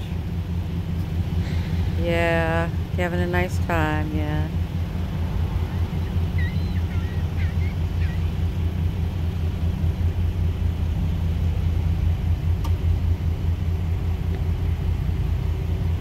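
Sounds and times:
vehicle engine idling: 0.0s - 16.0s.

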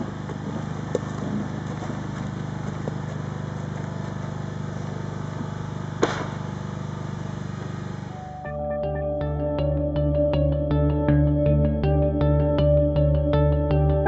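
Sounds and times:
engine running steadily: 0.0s - 9.5s
sharp knock: 6.0s - 6.4s.

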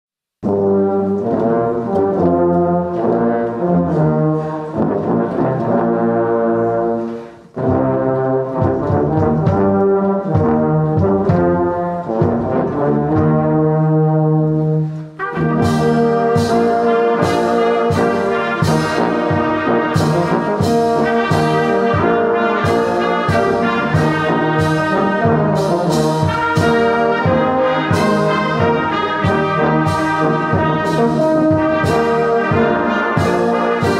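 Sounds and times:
brass band playing a hymn: 0.4s - 33.9s.

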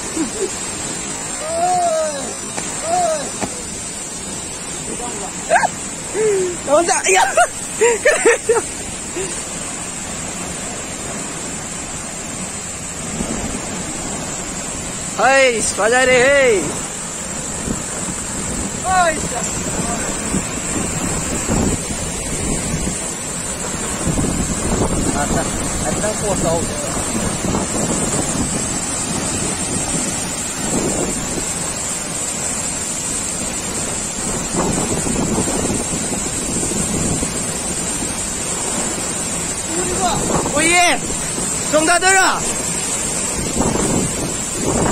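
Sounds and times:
waterfall roaring: 0.0s - 44.9s
wind buffeting microphone: 16.4s - 44.9s.

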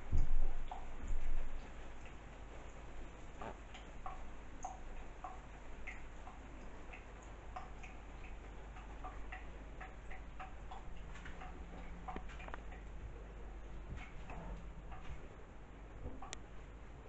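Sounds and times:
faint steady hum: 0.0s - 17.0s
water dripping: 0.0s - 17.0s.

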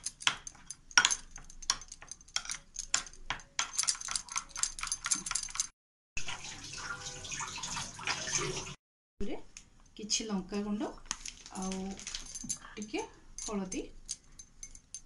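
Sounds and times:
spoon scraping glass bowl: 3.6s - 5.7s.

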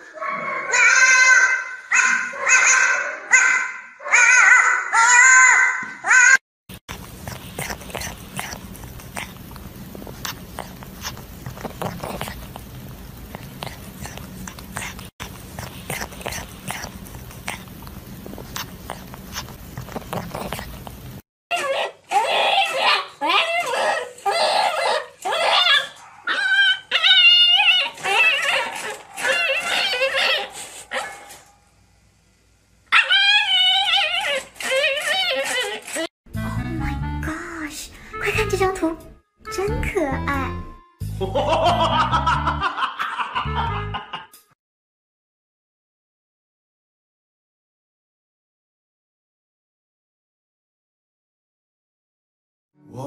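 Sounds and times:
puppy whining: 4.1s - 31.2s, 32.9s - 36.1s
cat biting and licking toy: 6.7s - 21.2s.

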